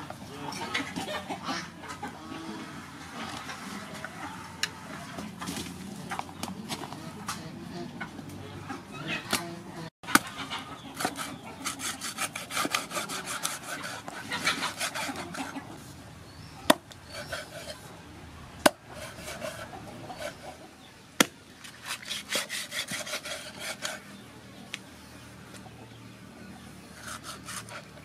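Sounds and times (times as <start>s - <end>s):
cleaver sawing through fish: 10.9s - 15.7s, 16.7s - 17.8s, 18.6s - 20.6s, 21.7s - 24.2s, 26.9s - 28.0s
cleaver chopping on wooden block: 18.6s - 18.8s.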